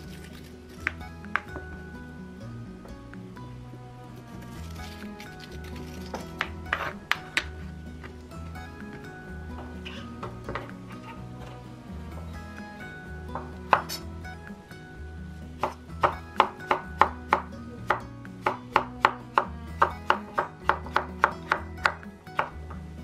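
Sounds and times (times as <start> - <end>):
background music: 0.0 - 23.0
knife chopping on cutting board: 13.3 - 14.0, 15.6 - 22.7.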